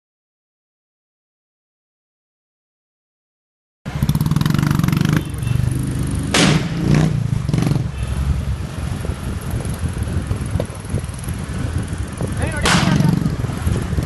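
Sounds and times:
motorcycle engine revving: 0:03.9 - 0:14.0.

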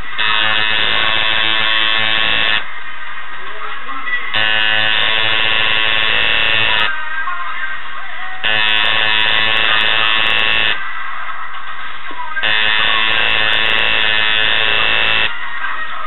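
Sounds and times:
tattoo machine buzzing: 0:00.0 - 0:02.6, 0:04.4 - 0:06.9, 0:08.4 - 0:10.8, 0:12.4 - 0:15.3.

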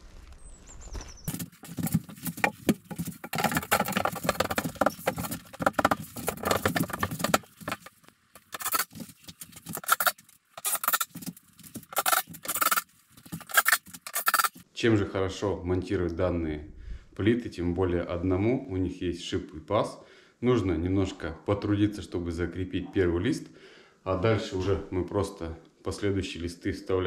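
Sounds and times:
board clattering and scraping: 0:01.3 - 0:14.6.

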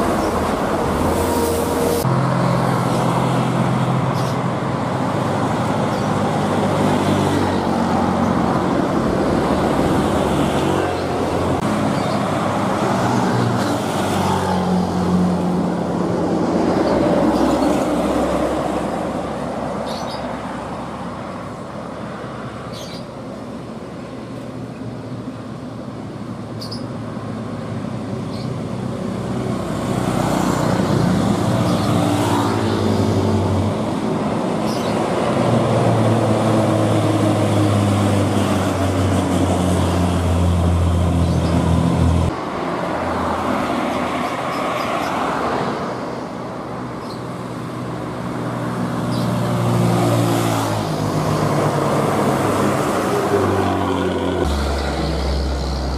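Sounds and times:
motorcycles passing: 0:27.8 - 0:55.9.

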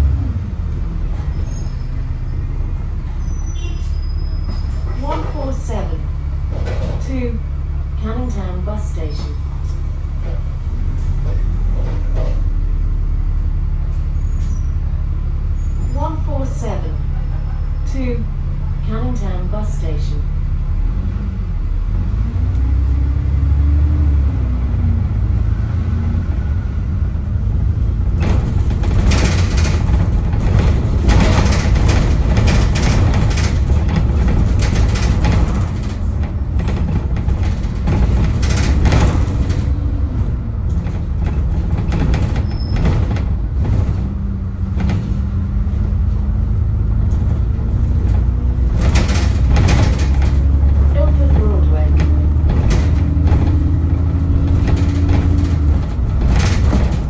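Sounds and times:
bus engine and road rumble: 0:00.0 - 0:57.0
loud rattling: 0:27.7 - 0:57.0.

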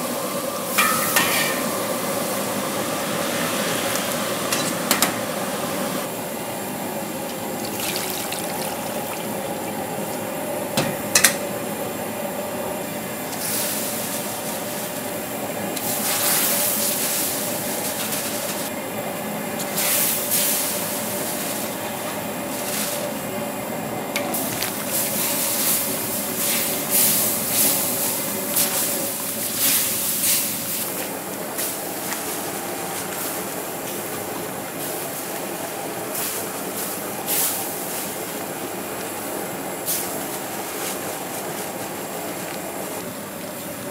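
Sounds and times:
steady hum: 0:00.0 - 0:43.9
broth bubbling and splashing: 0:07.3 - 0:10.0.

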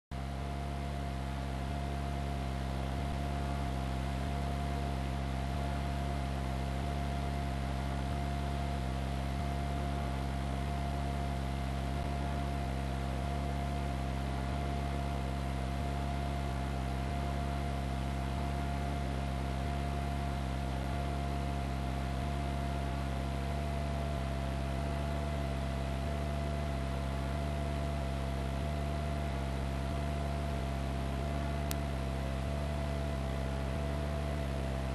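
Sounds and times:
helicopter cabin drone: 0:00.2 - 0:25.3
constant whine: 0:00.2 - 0:34.9.

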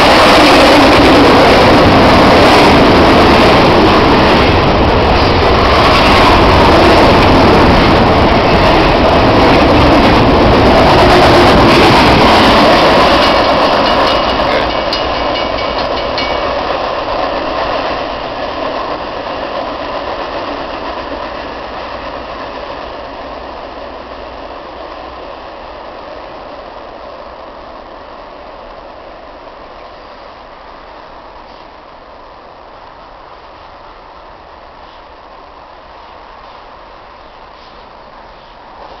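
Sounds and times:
freight train wheels rushing: 0:00.0 - 0:39.0.

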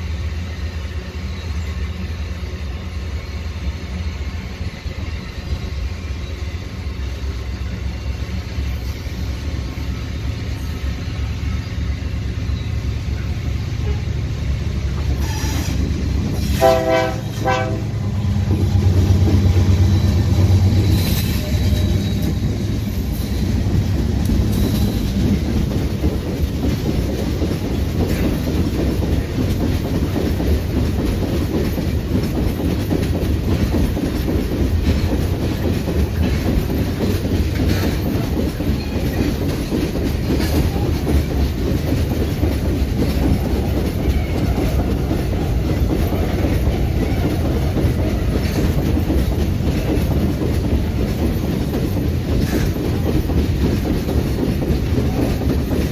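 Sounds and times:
freight train wheels rumbling on rail: 0:00.0 - 0:55.9.

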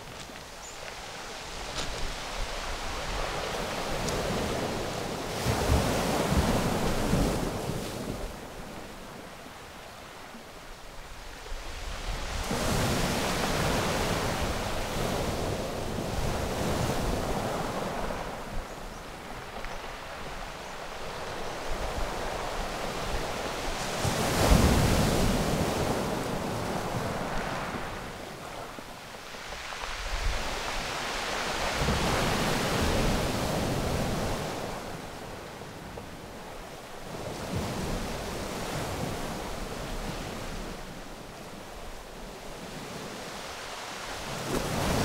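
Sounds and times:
waves washing over pebble beach: 0:43.5 - 0:45.0.

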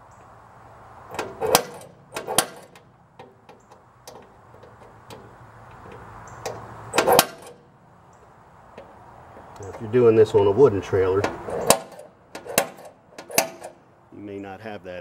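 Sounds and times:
center punch snapping: 0:01.1 - 0:07.7, 0:11.2 - 0:13.8.

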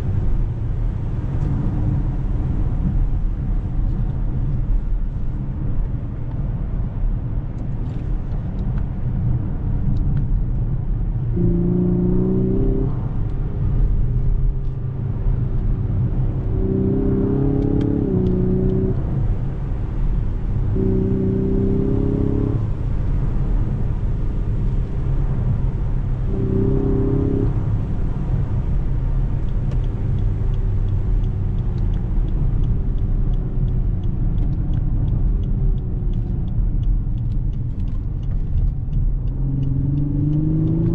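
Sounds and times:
car cabin low rumble: 0:00.0 - 0:40.9
engine hum: 0:00.0 - 0:40.9.

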